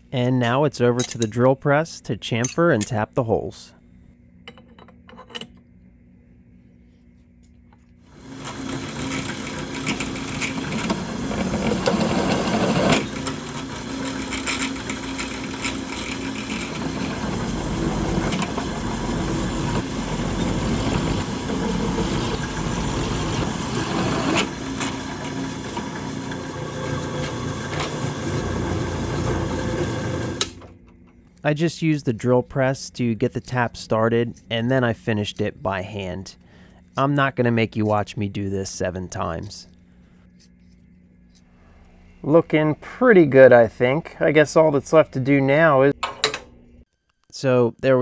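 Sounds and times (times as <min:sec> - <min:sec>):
drill press running: 0:08.1 - 0:31.0.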